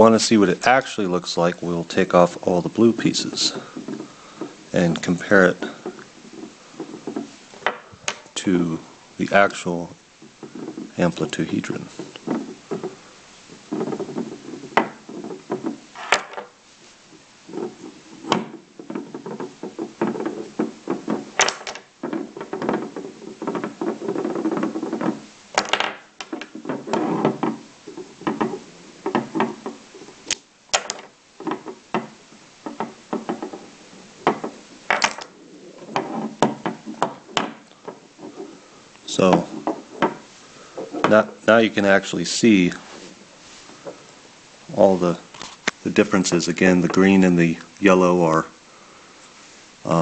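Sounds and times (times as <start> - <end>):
handling noise: 0.0 - 50.0
magnet pieces clicking: 30.2 - 31.1.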